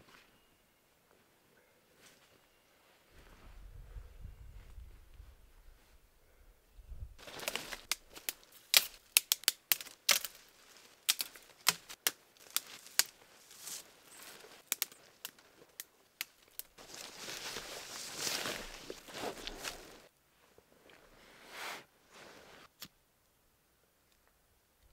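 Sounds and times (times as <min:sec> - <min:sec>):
wood fire crackling: 0:07.2 - 0:20.1.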